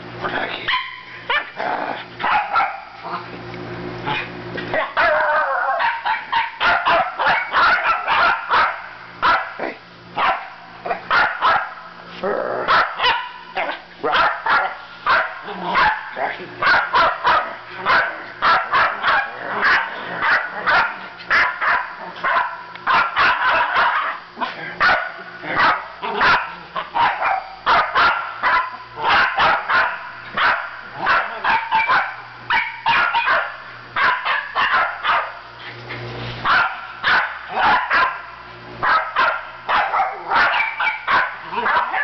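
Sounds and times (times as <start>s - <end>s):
puppy yapping: 4.8s - 9.5s, 12.7s - 35.4s, 36.5s - 42.0s.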